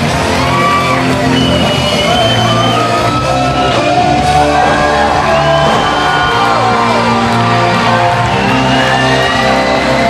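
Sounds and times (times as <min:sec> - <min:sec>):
crowd shouting and whooping: 0:00.0 - 0:10.0
loud rock music: 0:00.0 - 0:10.0.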